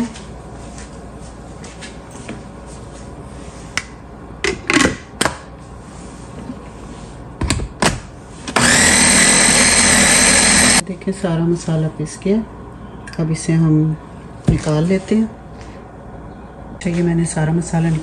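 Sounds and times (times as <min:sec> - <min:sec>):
food processor grinding: 0:08.6 - 0:10.8.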